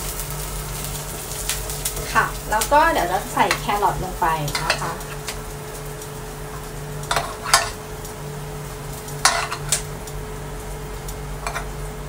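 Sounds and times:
onions frying: 0:00.0 - 0:12.0
steady low hum: 0:00.0 - 0:12.0
metal spoon clinking on pan: 0:04.5 - 0:05.0, 0:07.1 - 0:07.8, 0:09.2 - 0:09.8, 0:11.4 - 0:11.7.

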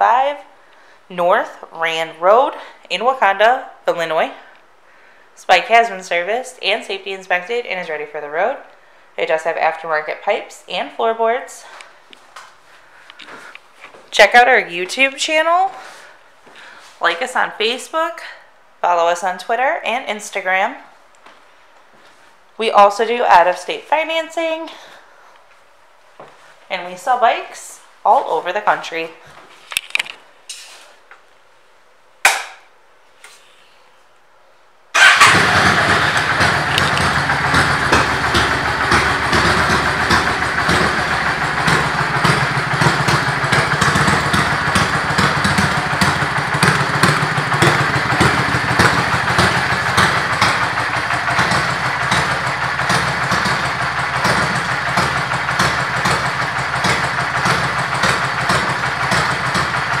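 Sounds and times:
sharp knock: 0:32.2 - 0:32.6
motorcycle engine starting and idling: 0:34.9 - 1:00.0.

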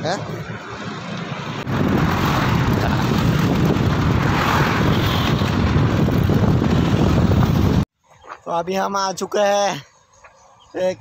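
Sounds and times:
road traffic noise: 0:00.0 - 0:11.0
wind buffeting microphone: 0:01.6 - 0:07.9.

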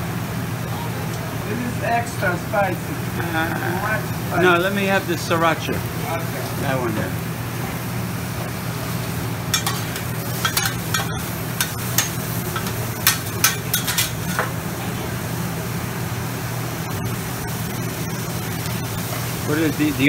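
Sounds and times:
steady low hum: 0:00.0 - 0:20.0
food sizzling on griddle: 0:00.7 - 0:20.0
metal clacks on griddle: 0:09.5 - 0:14.6
metal spatulas scraping griddle: 0:09.6 - 0:14.5.

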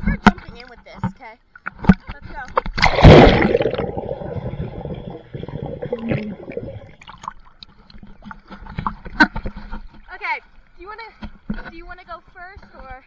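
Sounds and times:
water sloshing and gurgling: 0:00.0 - 0:13.0
big splash into pool water: 0:02.8 - 0:04.4.

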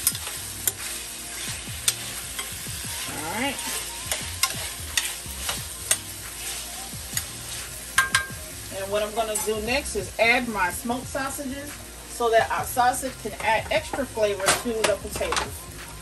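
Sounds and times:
spatula clicking and scraping pan: 0:00.0 - 0:08.4, 0:09.0 - 0:09.6, 0:13.2 - 0:15.6
potatoes sizzling in oil: 0:00.0 - 0:16.0.

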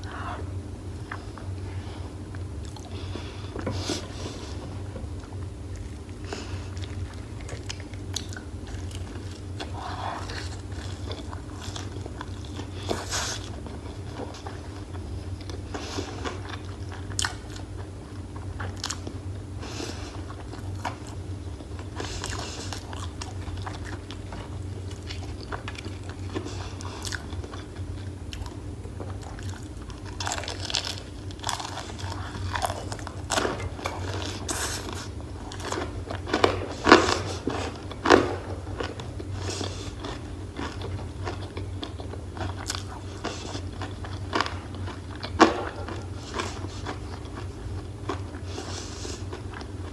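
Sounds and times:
crunchy chewing of fried chicken: 0:00.0 - 0:49.9
low steady hum: 0:00.0 - 0:49.9.

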